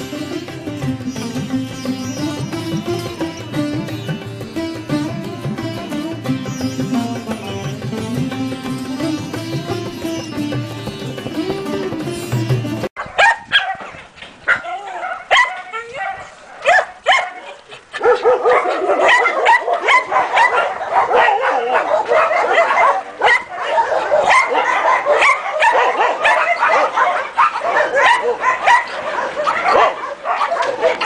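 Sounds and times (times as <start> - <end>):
dogs barking and yelping: 13.0 - 31.0.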